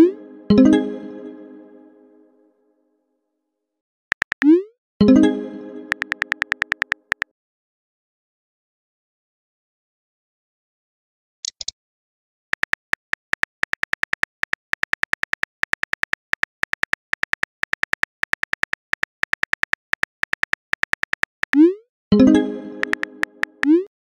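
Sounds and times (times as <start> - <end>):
phone keyboard typing clicks: 4.1 - 4.6, 5.9 - 7.3, 12.6 - 21.7, 22.8 - 23.9.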